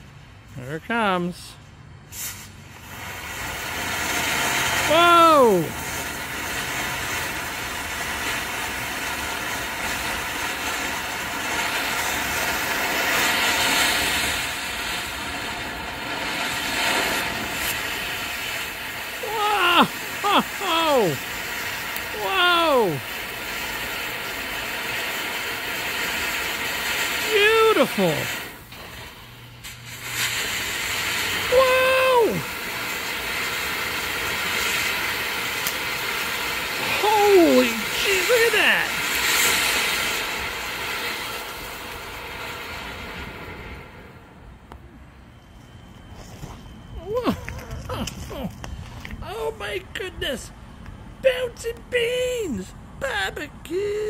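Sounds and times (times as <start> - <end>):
firework fountain hissing: 0.0 - 54.0
man calling out whoa: 4.7 - 5.8, 19.2 - 21.3, 22.0 - 23.1, 27.2 - 28.4, 31.5 - 32.5, 36.8 - 39.0, 47.0 - 48.6, 49.2 - 50.5, 51.2 - 54.0.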